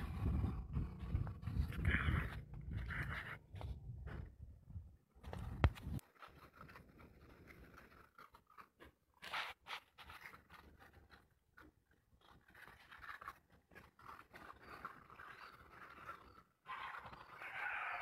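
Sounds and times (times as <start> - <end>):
puppies crunching food: 5.3 - 18.0.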